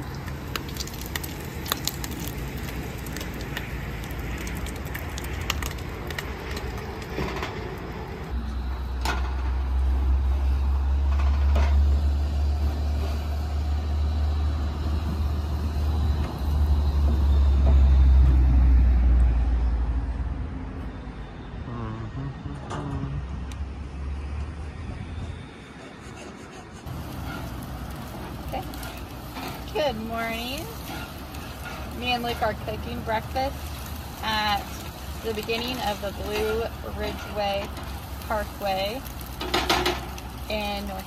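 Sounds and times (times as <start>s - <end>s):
spatula scraping a pan: 30.6s - 32.6s, 35.2s - 38.0s.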